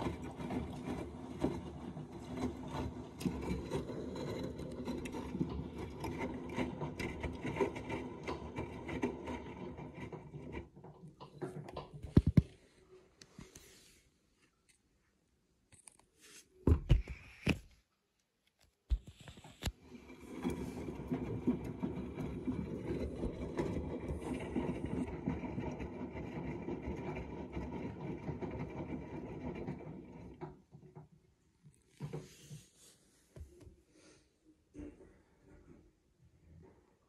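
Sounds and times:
washing machine motor running: 0.0 - 12.5, 19.8 - 32.2.

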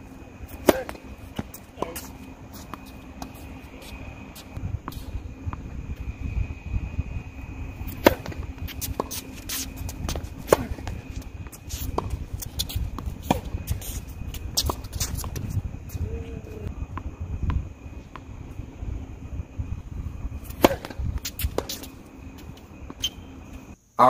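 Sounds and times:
low rumble: 0.0 - 23.8
racket striking tennis ball: 0.2 - 5.7, 7.8 - 15.5, 20.4 - 23.4
ball bouncing on hard court: 0.6 - 3.4, 7.9 - 15.5, 20.5 - 21.9.

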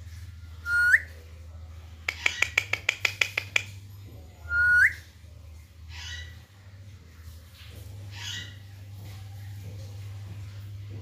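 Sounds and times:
quick run of sharp clicks: 2.1 - 3.8.

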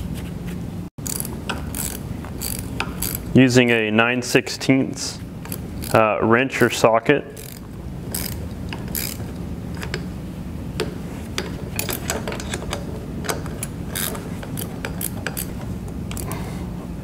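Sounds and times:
hand ratchet clicking: 1.0 - 3.4, 5.4 - 6.0, 7.3 - 10.1, 10.8 - 16.4.

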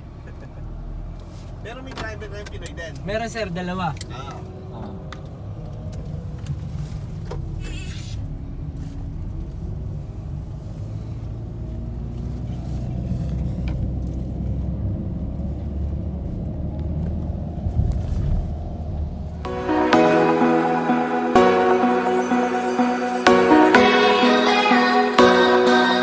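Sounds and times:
vehicle engine and road rumble: 0.0 - 19.5.

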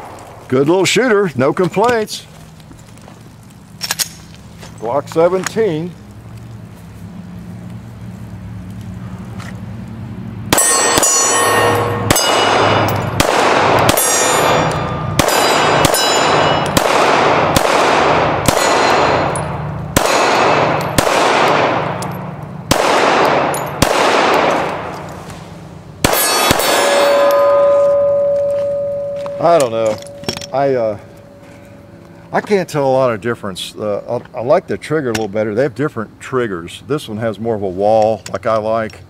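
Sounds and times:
steel targets ringing: 10.5 - 16.9, 18.5 - 22.4, 26.0 - 32.0
pistol shots: 10.5 - 25.1, 26.0 - 29.1.

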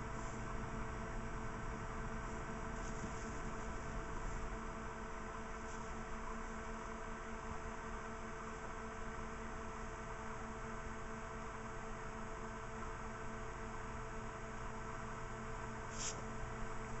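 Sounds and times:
even hiss: 15.9 - 16.3
short high hiss: 15.9 - 16.3.

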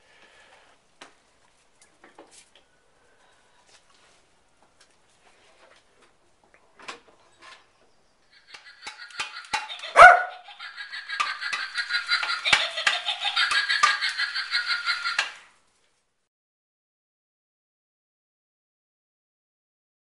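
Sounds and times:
dog barking and yapping: 9.8 - 10.4.

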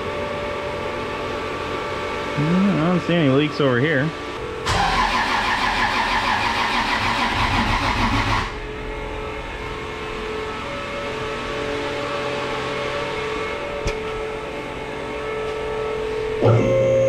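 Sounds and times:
starter motor cranking engine: 4.7 - 8.6
faint held tone: 15.0 - 17.0.

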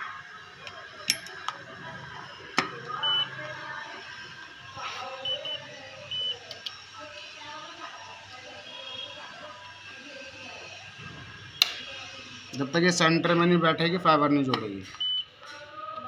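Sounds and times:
machine beeps: 2.2 - 3.6, 5.2 - 6.5, 14.8 - 15.3.

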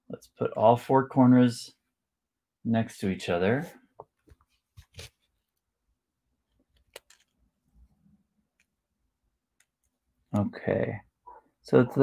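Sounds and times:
soft clicks of handling books: 4.0 - 5.6.

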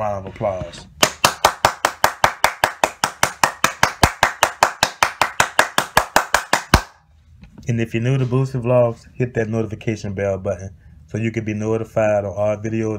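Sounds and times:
hands clapping: 1.0 - 7.0.

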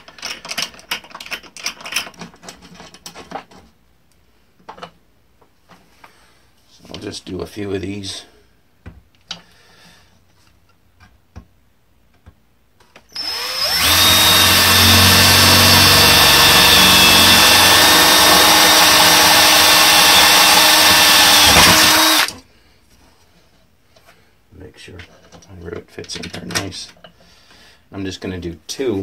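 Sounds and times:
cordless drill drilling into metal: 13.1 - 22.4.

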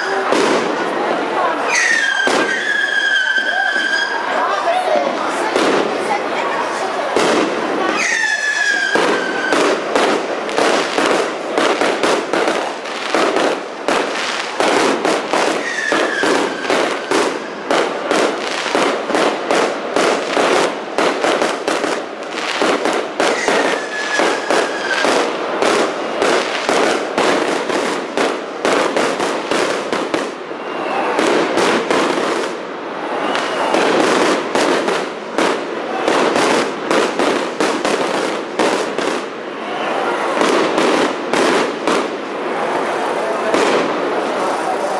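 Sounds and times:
fireworks bangs and crackles: 0.0 - 44.9
firework whistle gliding down: 1.7 - 4.4.

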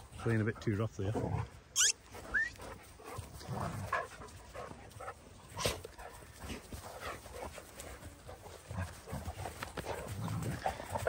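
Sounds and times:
dogs whining while play-fighting: 1.7 - 2.8.

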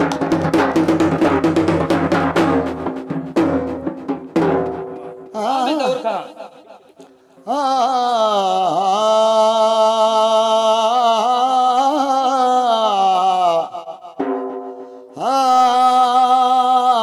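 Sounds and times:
man singing a long note: 5.3 - 14.2, 15.2 - 17.0.

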